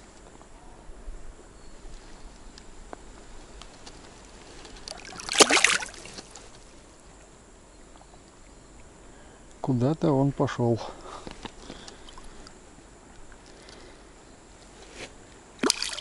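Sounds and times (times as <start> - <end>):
lake water lapping: 4.7 - 6.7, 15.6 - 16.0
water splash: 4.9 - 6.4, 15.6 - 16.0
small ticks: 11.0 - 14.0.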